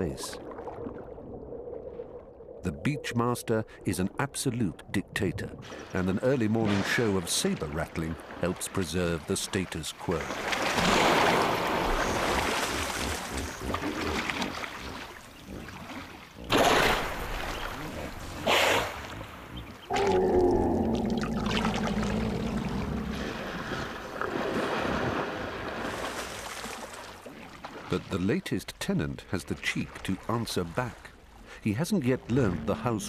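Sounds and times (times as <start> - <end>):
water sloshing: 5.2 - 28.2
loud splashes: 10.3 - 13.3, 16.5 - 19.1
hippo bellowing: 19.6 - 23.7.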